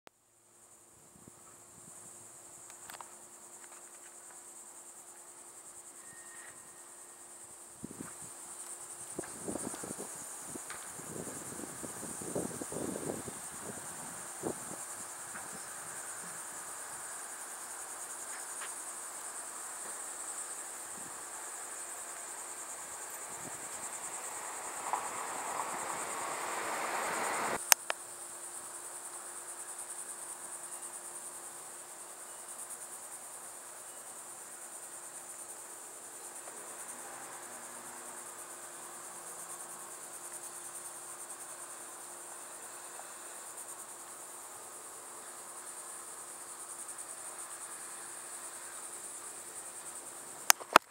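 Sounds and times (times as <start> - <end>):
insects trilling: 0.4 - 50.9
rush of noise: 23.3 - 27.6
sharp click: 50.4 - 50.9.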